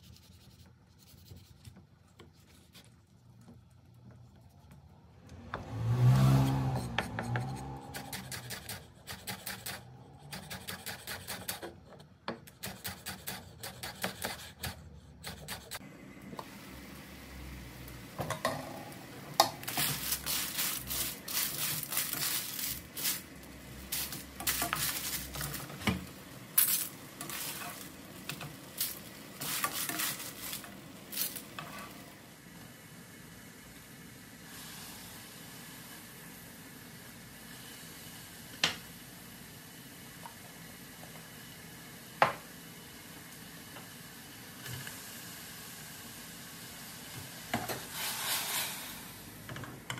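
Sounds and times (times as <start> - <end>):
clams sizzling in a pan: 19.0 - 25.8, 26.4 - 32.2, 34.3 - 49.5
shells clattering and scraping: 26.6 - 27.8.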